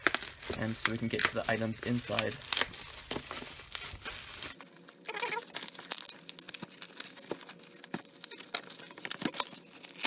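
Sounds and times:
bubble wrap crinkling: 0.0s - 10.0s.

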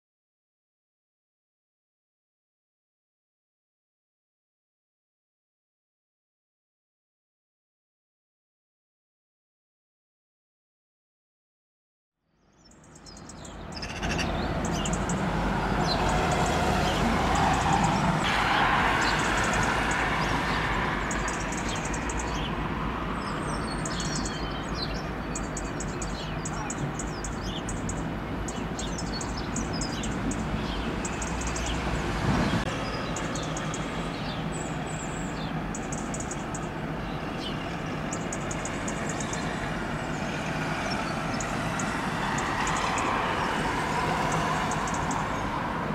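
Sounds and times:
small birds chirping: 12.3s - 18.2s, 18.9s - 45.6s.

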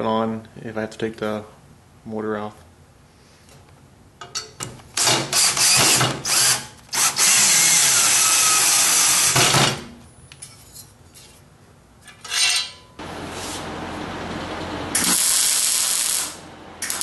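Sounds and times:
cordless drill driving a bolt: 5.0s - 9.7s.

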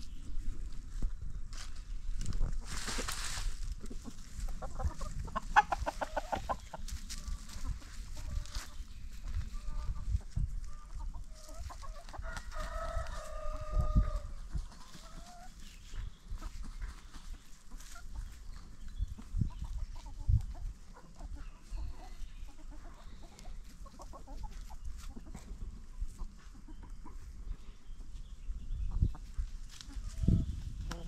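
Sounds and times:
chickens clucking: 0.0s - 31.0s
rooster crowing: 12.2s - 14.3s.

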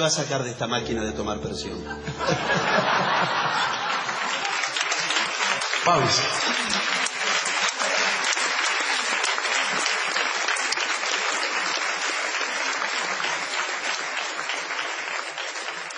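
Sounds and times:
audience applauding: 2.0s - 15.9s.

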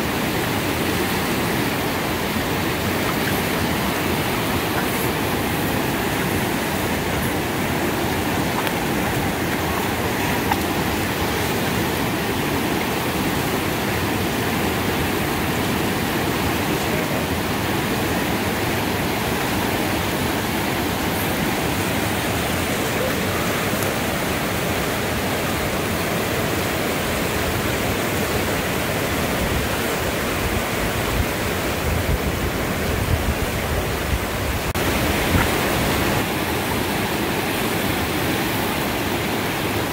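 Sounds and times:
river rapids roaring: 0.0s - 39.9s.

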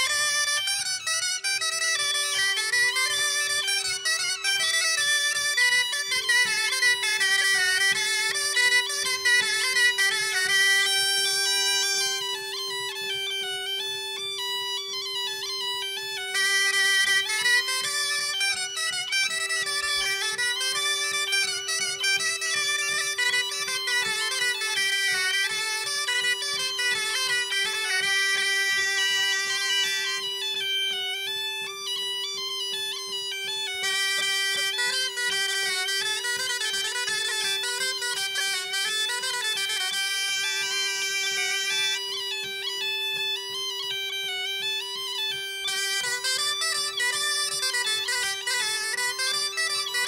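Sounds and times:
bagpipe playing dance tune: 0.0s - 50.0s.

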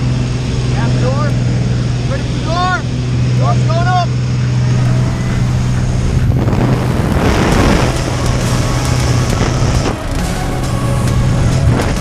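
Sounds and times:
propeller engine droning: 0.0s - 12.0s
wind rushing: 4.2s - 12.0s.

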